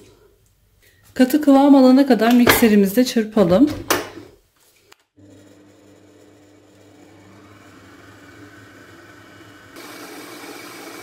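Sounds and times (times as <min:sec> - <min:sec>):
stand mixer motor hum: 0:05.2 - 0:11.0.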